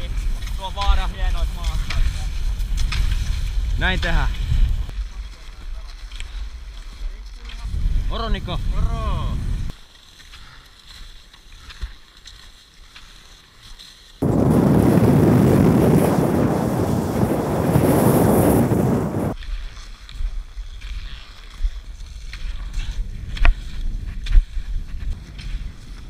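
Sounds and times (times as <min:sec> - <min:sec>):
skis gliding on snow: 0:00.0 - 0:26.0
wind rushing: 0:14.2 - 0:19.4.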